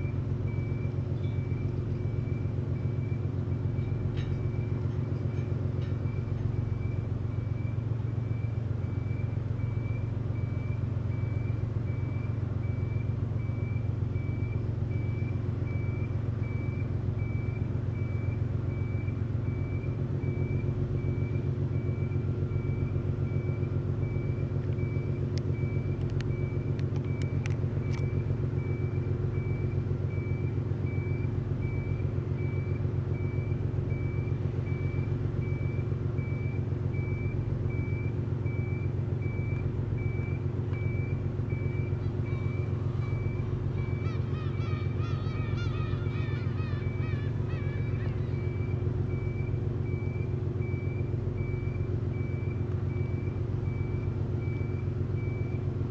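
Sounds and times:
faint high-pitched beep: 0:00.0 - 0:05.3
low engine rumble: 0:00.0 - 0:55.9.

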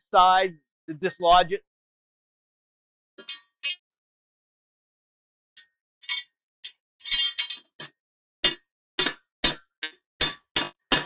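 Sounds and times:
metal bar tapping metal: 0:08.4 - 0:11.0.

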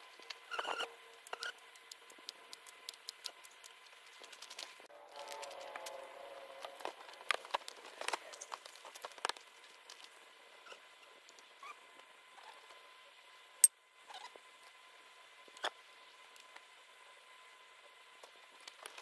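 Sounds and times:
wavering squeak: 0:00.5 - 0:01.6.

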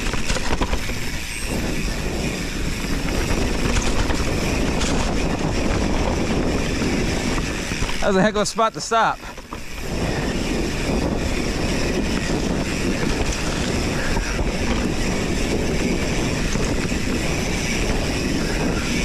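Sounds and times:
bike rolling over dirt trail: 0:00.0 - 0:19.0
wind buffeting microphone: 0:00.0 - 0:19.0.

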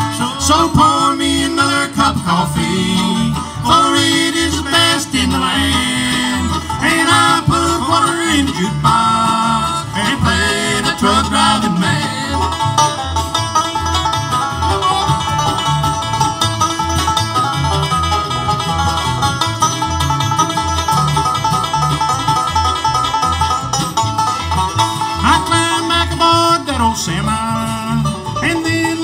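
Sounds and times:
country band playing: 0:00.0 - 0:29.0.

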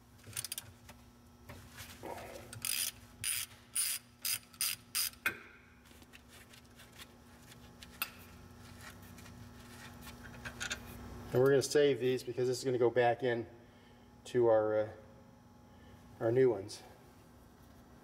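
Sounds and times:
socket ratchet clicking: 0:02.6 - 0:05.3.

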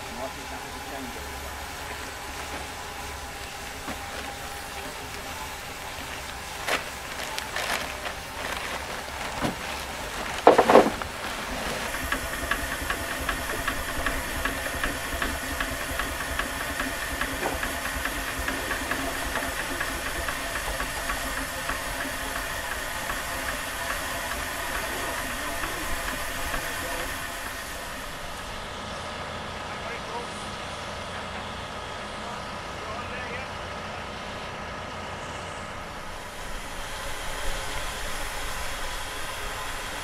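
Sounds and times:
steam engine mechanical beat: 0:00.0 - 0:28.4
steam hissing: 0:00.0 - 0:32.8, 0:33.8 - 0:40.0
loud knocks: 0:10.3 - 0:11.2.

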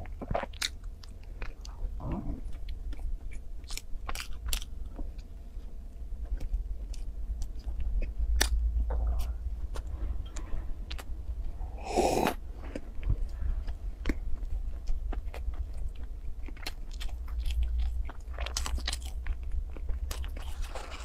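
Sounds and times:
biting and crunching food: 0:00.0 - 0:09.9, 0:11.8 - 0:21.0
person sipping: 0:11.7 - 0:12.4.

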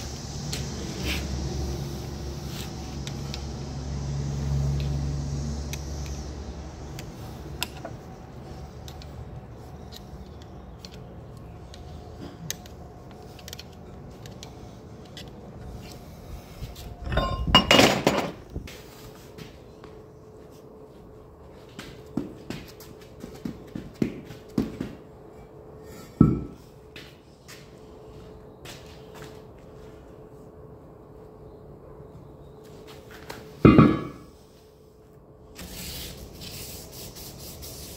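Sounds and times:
low hum: 0:00.0 - 0:22.1.

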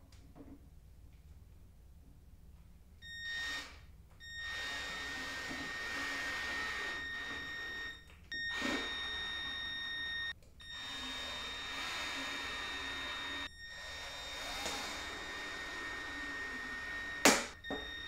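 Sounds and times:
cordless drill driving screws: 0:04.4 - 0:09.6, 0:10.7 - 0:18.0.

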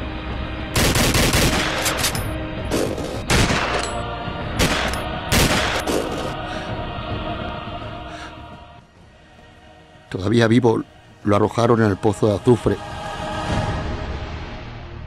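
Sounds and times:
low music drone: 0:00.0 - 0:15.0
rifle and pistol shots echoing: 0:00.8 - 0:02.2, 0:03.0 - 0:03.9, 0:04.6 - 0:06.2.

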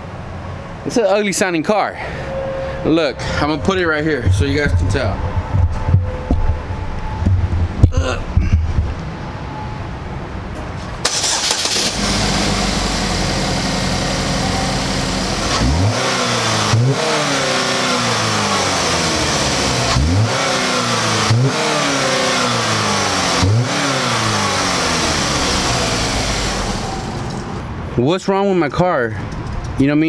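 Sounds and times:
car engine starting and revving: 0:11.0 - 0:27.7.

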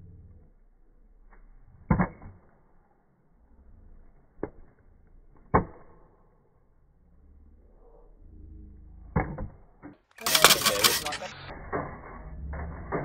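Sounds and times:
hatchet chopping wood: 0:05.4 - 0:06.0.

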